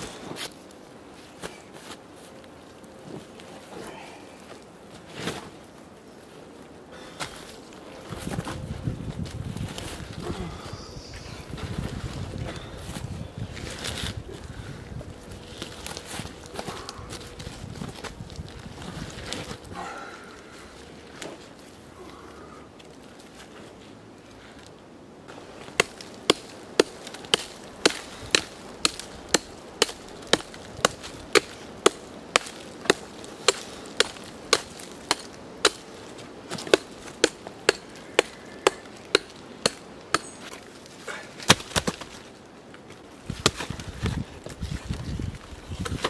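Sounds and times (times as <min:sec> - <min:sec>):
hand tool striking rock: 0:25.7 - 0:35.9, 0:36.5 - 0:40.6.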